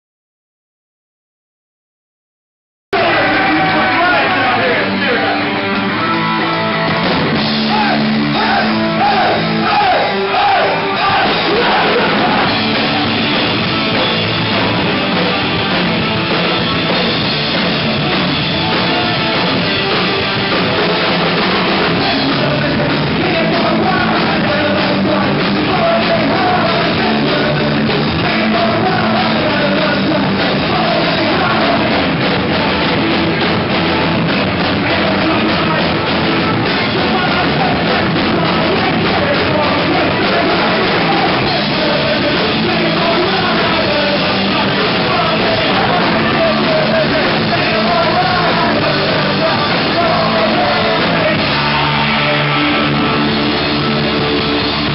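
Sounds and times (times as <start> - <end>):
drum kit: 2.9 - 54.9
guitar: 2.9 - 54.9
shouted vocals: 3.0 - 6.4, 7.3 - 13.8, 21.6 - 33.4, 34.2 - 54.9.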